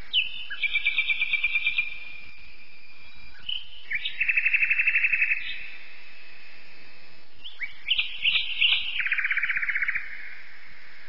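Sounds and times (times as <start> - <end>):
faint hiss: 0.0 - 11.0
songbird trilling and whistling: 0.1 - 2.0, 2.9 - 5.7, 7.4 - 10.2.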